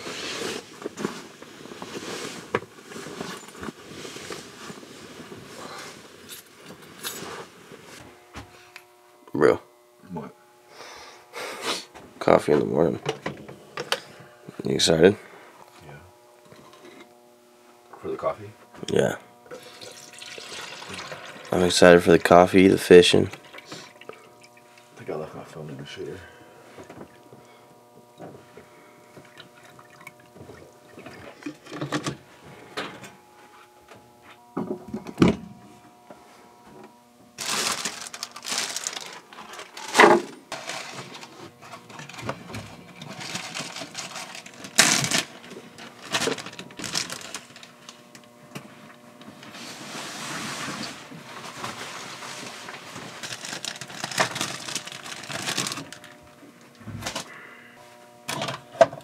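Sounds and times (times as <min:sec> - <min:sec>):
faint steady hum: 0:00.0 - 0:59.0
objects knocking and clattering: 0:30.5 - 0:32.2.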